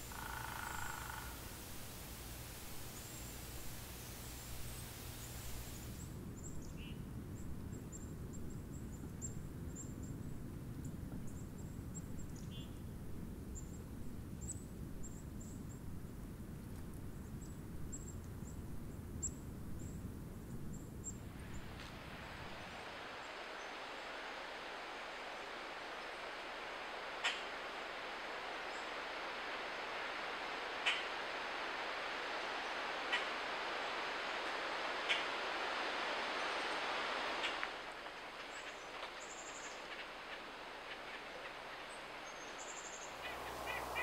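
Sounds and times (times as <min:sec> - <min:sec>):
nuthatch nasal call: 0:00.0 - 0:06.0, 0:30.8 - 0:31.1, 0:41.1 - 0:44.0
steady higher hiss: 0:00.0 - 0:06.9, 0:20.6 - 0:44.0
high thin bird chirps: 0:42.6 - 0:44.0
steady low rumble: 0:43.0 - 0:44.0.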